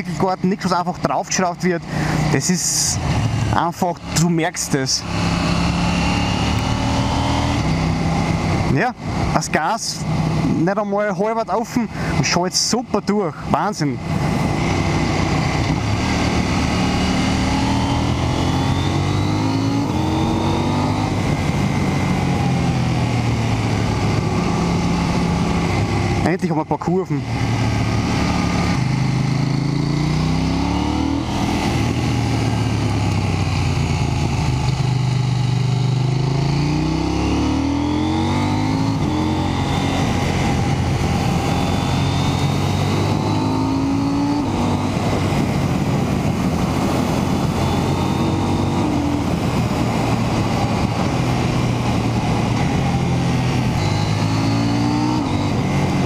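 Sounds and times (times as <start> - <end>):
motorcycle engine revving: 0.0 - 12.2, 13.6 - 56.0
wind noise: 27.3 - 56.0.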